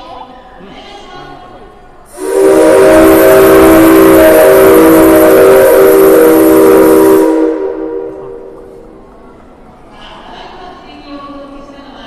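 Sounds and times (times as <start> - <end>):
strong steam hiss: 2.0 - 9.2
steam locomotive whistle: 2.1 - 8.6.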